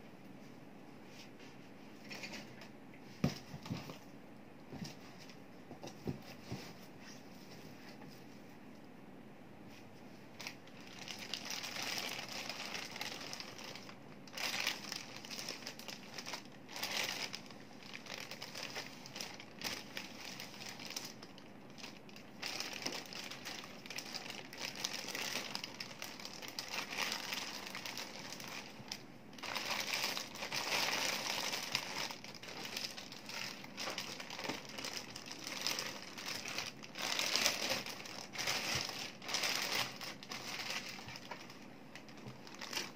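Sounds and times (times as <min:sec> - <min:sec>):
plastic bag crinkling: 0:10.4 - 0:42.9.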